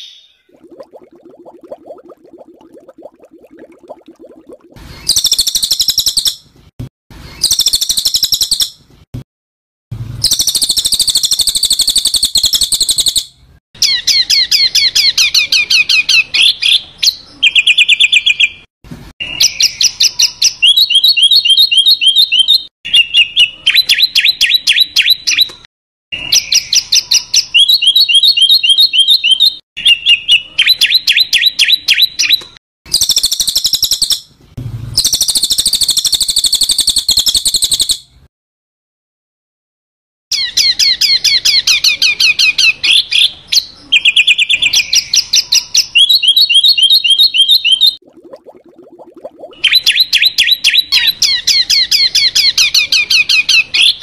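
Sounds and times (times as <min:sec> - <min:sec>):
songbird buzzy calls and rattling trills: 0:10.2 - 0:16.5, 0:31.2 - 0:34.3, 0:35.0 - 0:38.0.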